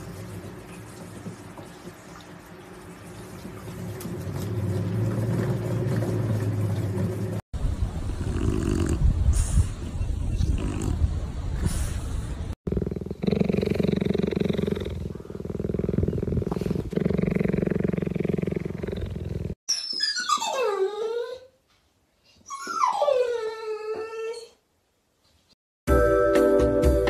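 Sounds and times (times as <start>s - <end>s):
cheetah purring: 8.2s - 9.1s, 12.6s - 19.6s
dog whining: 19.7s - 21.6s, 22.4s - 24.6s.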